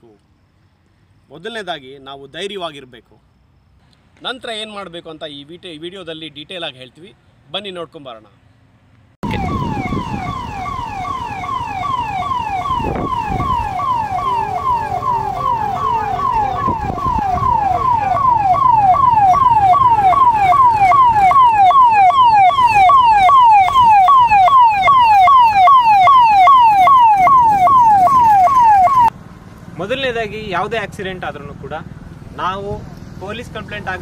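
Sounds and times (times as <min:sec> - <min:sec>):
ambulance siren wailing: 0:09.2 - 0:29.1.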